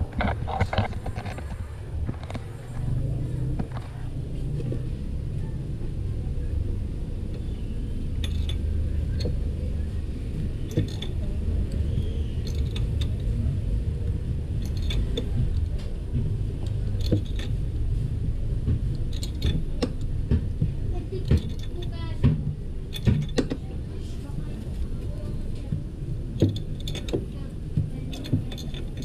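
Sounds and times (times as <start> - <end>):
low rumble: 0.0 - 29.0
light metal clicks and clinks: 8.2 - 9.4, 10.6 - 11.2, 12.4 - 13.4, 14.6 - 15.9, 17.0 - 17.6, 19.1 - 20.1, 21.2 - 22.0, 22.9 - 23.6, 26.4 - 29.0.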